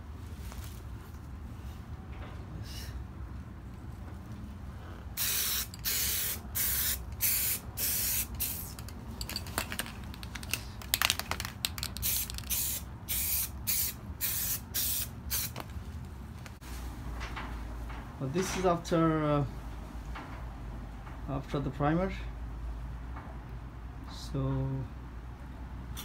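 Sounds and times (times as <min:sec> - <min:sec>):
aerosol spray can hissing: 0:05.2 - 0:08.8, 0:11.9 - 0:15.6.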